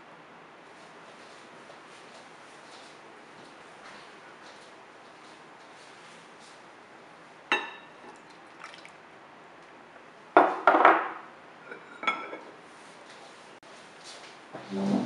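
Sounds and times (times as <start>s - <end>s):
ceramic bowls clinking: 7.5s - 8.9s, 10.4s - 12.5s
hot water splashing into dish: 7.6s - 9.0s.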